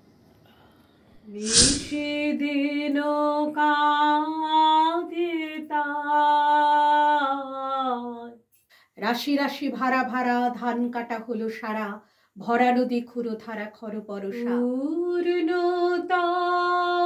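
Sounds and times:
short loud hiss: 0:01.3 - 0:02.2
woman singing unaccompanied: 0:02.0 - 0:08.4, 0:12.6 - 0:17.0.

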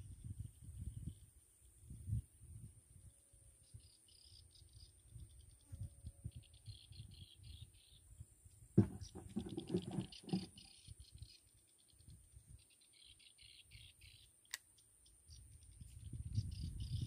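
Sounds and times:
wind buffeting microphone: 0:00.0 - 0:01.2, 0:15.8 - 0:17.0
insects chirping: 0:03.0 - 0:05.6
loud scraping noise: 0:08.8 - 0:10.5.

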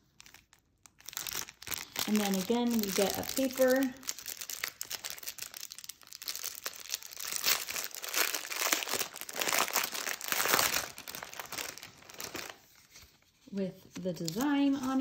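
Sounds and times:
paper crinkling and rustling: 0:00.0 - 0:15.0.

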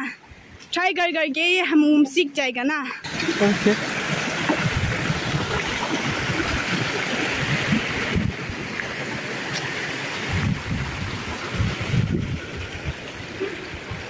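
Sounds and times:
stream rushing over rocks: 0:03.0 - 0:14.0.

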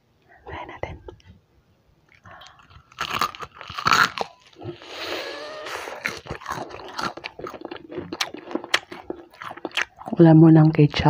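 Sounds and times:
crunching of fried chicken: 0:02.1 - 0:10.2
chewing with crackles: 0:02.1 - 0:10.8.

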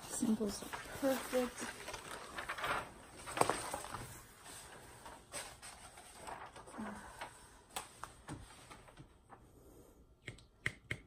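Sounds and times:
plastic film rustling: 0:00.0 - 0:09.4.

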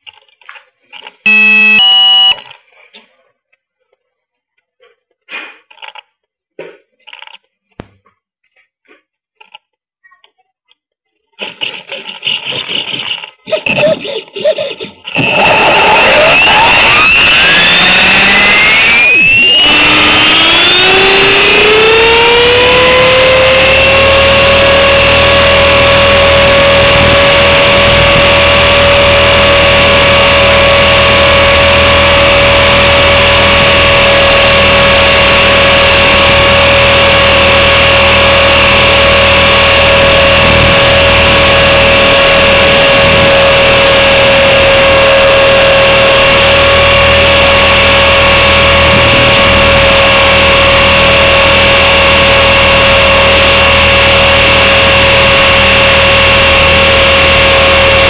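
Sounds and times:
rc helicopter motor whine: 0:01.3 - 0:02.4, 0:15.2 - 0:58.0.

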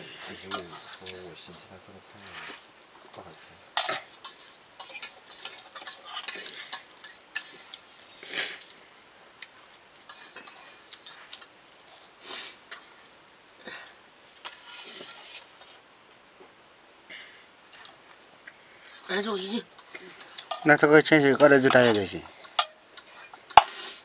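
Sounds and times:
cutlery scraping and clinking on dishes: 0:03.8 - 0:08.2, 0:09.6 - 0:11.5, 0:14.4 - 0:15.8, 0:18.9 - 0:24.0.

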